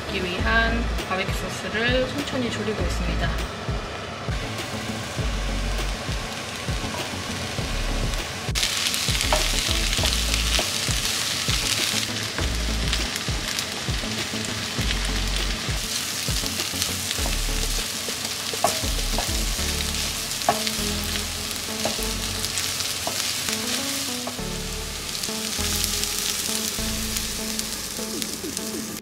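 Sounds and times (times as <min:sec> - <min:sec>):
meat and onion sizzling in a pan: 0:03.6 - 0:29.0
utensil scraping and tapping: 0:18.5 - 0:19.4.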